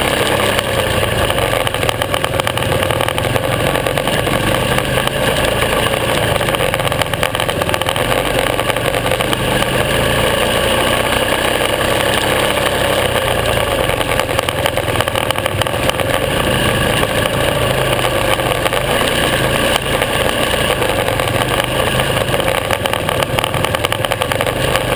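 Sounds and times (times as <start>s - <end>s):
motorcycle engine running: 0.0s - 24.9s.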